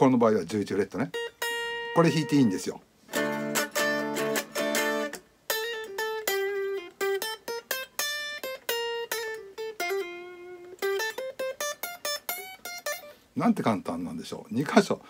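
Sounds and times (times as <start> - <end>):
clean electric guitar lead: 1.1 - 13.1.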